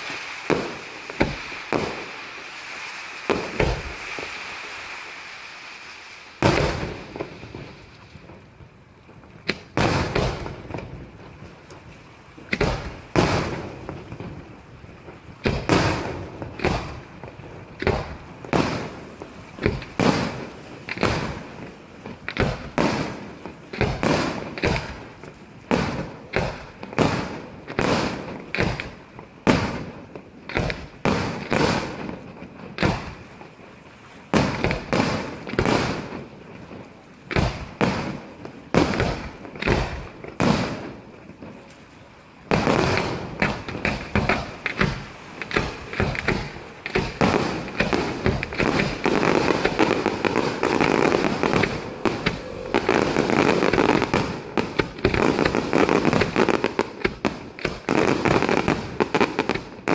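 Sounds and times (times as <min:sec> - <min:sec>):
firework shells bursting: 0:00.0 - 0:02.6, 0:42.5 - 0:59.9.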